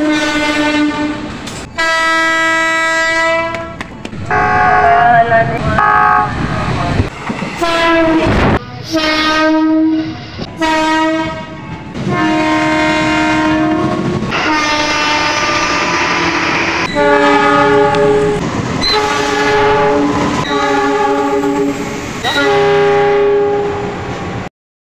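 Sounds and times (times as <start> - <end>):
train horn blasts: 0.0 - 5.0, 5.8 - 6.4, 7.6 - 24.0
train wheels rumbling and clicking: 1.1 - 1.8, 3.4 - 4.3, 5.5 - 8.9, 11.3 - 22.4.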